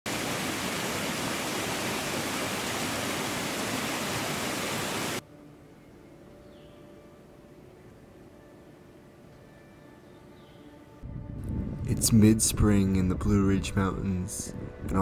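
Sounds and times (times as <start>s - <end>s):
water rushing over rocks: 0.1s - 5.2s.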